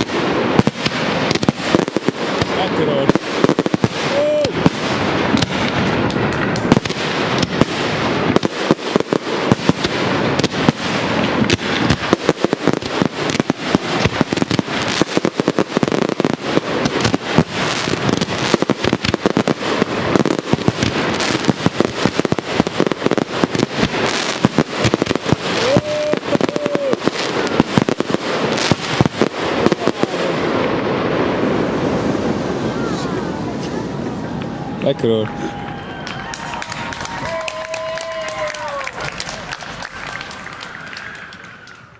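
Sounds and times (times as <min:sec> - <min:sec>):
firework shells bursting: 0:00.0 - 0:32.5
firework crackling: 0:00.0 - 0:41.9.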